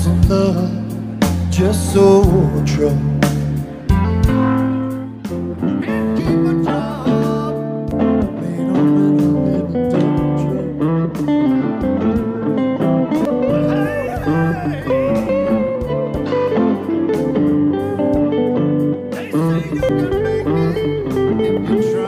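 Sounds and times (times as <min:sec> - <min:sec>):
blues electric guitar: 0:00.0 - 0:22.0.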